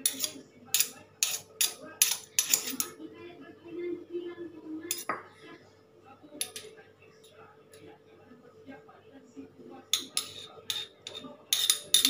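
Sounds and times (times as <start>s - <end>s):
spoon scraping in mortar: 0.0s - 2.9s, 10.0s - 12.0s
spoon clinking in stone mortar: 10.0s - 12.0s.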